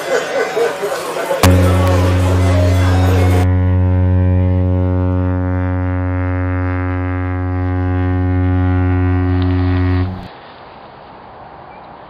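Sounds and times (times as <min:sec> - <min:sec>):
ship's horn long deep blast: 0:01.4 - 0:10.3.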